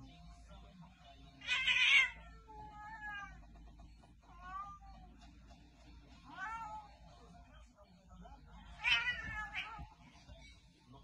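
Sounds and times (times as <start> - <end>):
cat hissing: 1.4 - 3.4
cat yowling meows: 1.4 - 3.4, 8.8 - 9.9.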